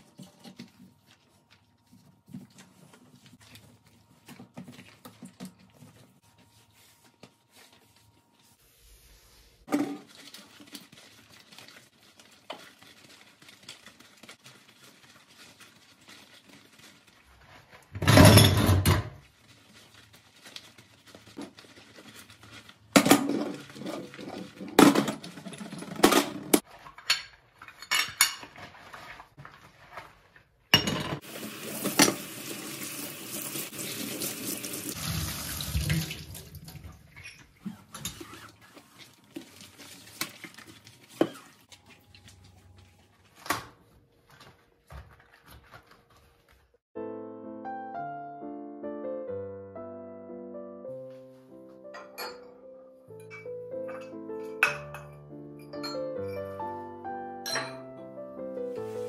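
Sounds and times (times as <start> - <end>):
metal grates clattering in a sink: 22.8 - 29.3.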